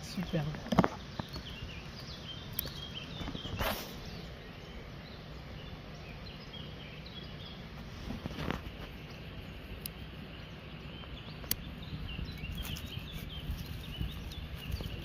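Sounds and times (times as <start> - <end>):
faint bird chirps: 0.0 - 15.0
brief rustling: 3.2 - 4.1.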